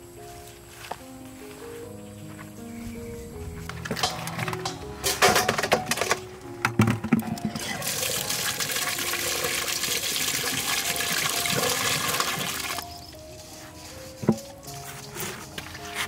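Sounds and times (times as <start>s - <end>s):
soft background music: 0.0s - 16.0s
water gushing: 7.6s - 12.8s.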